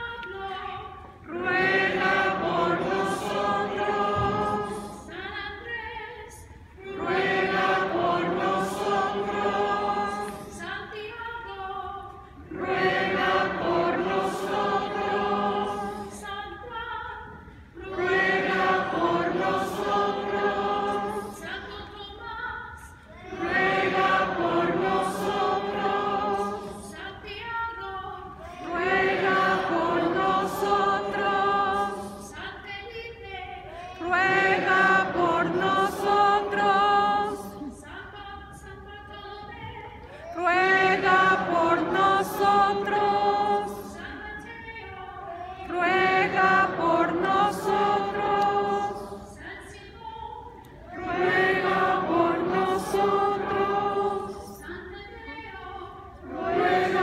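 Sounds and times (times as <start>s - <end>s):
choir and congregation singing hymn: 0.0s - 57.0s
woman cantor singing: 0.0s - 57.0s.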